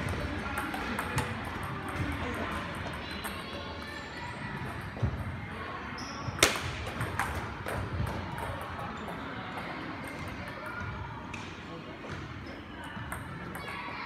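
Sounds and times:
faint music: 0.0s - 14.0s
table tennis ball hits: 6.4s - 8.8s.

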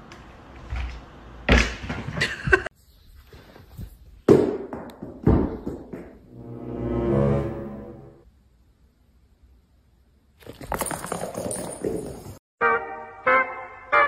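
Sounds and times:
thumps on hard floor: 4.3s - 6.2s.

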